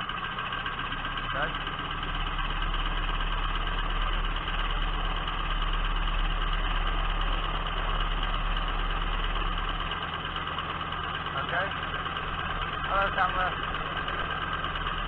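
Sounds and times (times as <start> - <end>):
piston aircraft engine running: 0.0 - 15.0.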